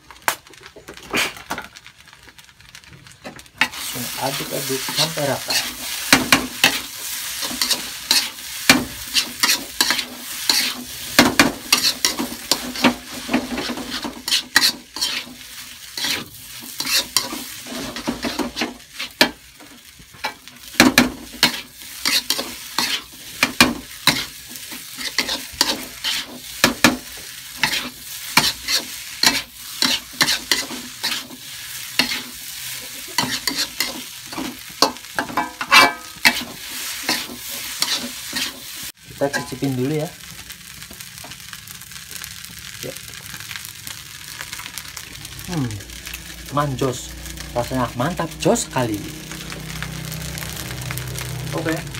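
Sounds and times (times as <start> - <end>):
rice sizzling: 0.0 - 51.9
metal spatula scraping a wok: 3.6 - 39.7.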